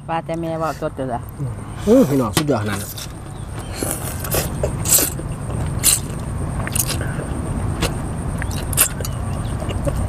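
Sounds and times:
chewing: 2.8s - 10.0s
noodle slurping: 3.7s - 7.2s, 7.8s - 10.0s.

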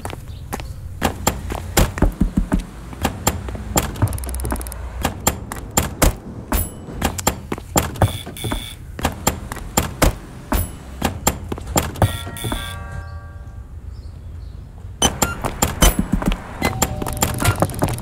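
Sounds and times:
rhythmic beat of door knocks: 1.0s - 13.0s, 15.0s - 18.0s
doorbell chime: 12.0s - 13.9s, 16.6s - 17.6s.

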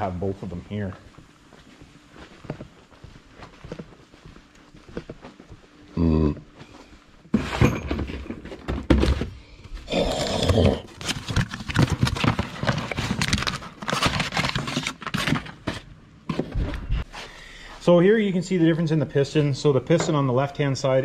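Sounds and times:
cardboard rustling: 10.8s - 16.8s.

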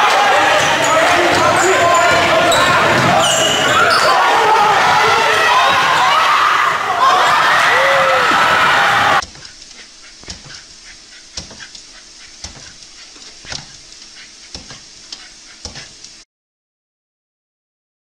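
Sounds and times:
crowd cheering: 0.0s - 9.2s
dog panting: 9.3s - 16.1s.

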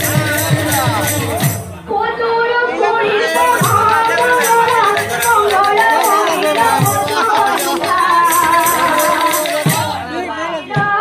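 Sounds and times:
women's group singing: 0.0s - 11.0s
jingling hand cymbals: 3.4s - 10.0s.

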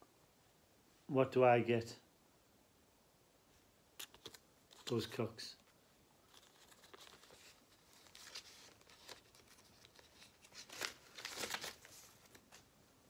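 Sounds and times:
plastic sleeve crinkling: 4.0s - 12.7s.

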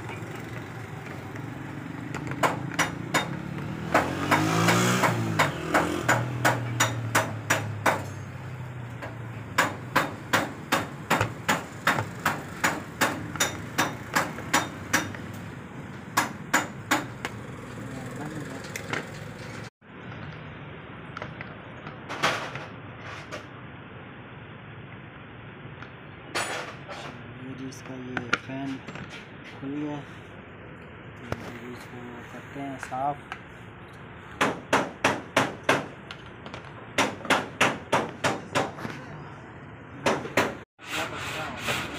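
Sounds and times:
steady hammering: 2.0s - 8.3s, 8.9s - 17.4s, 34.3s - 36.2s, 36.9s - 38.8s, 40.0s - 40.7s.

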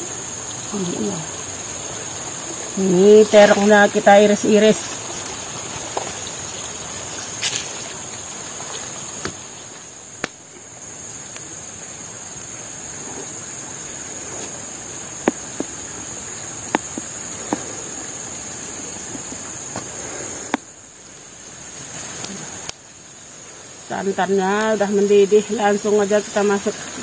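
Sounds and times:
river rushing: 0.0s - 10.2s
insects buzzing: 0.0s - 27.0s.

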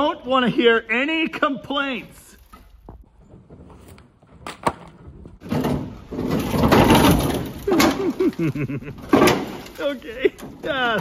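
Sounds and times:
metal scraping and creaking: 2.3s - 11.0s.

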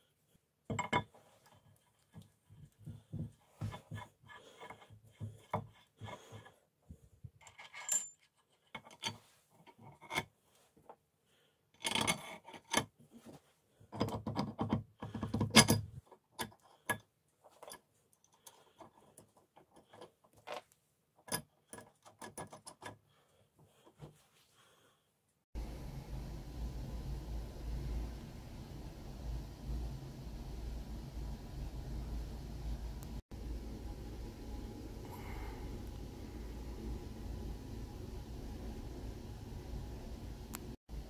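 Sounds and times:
steel parts clinking and rattling: 7.4s - 9.2s.

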